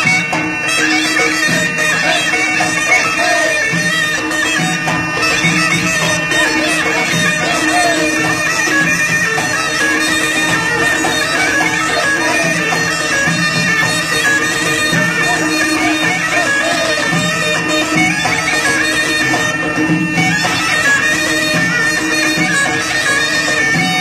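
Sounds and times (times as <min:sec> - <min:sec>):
folk dance music over a drone: 0:00.0 - 0:24.0.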